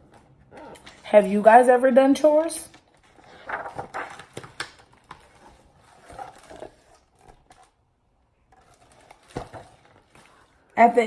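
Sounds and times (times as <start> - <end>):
paper rustling: 2.4 - 7.8, 8.5 - 10.7.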